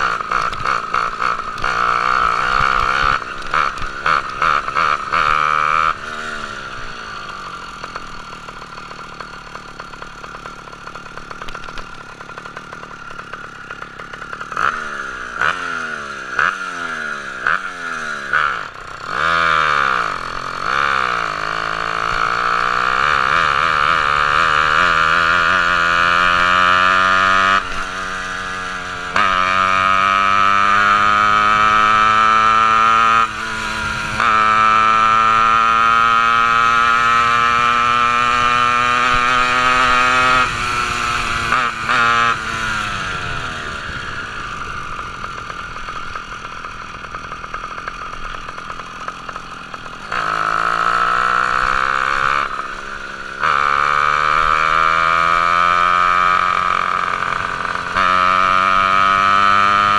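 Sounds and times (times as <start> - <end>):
two-stroke engine buzzing: 0.0 - 59.9.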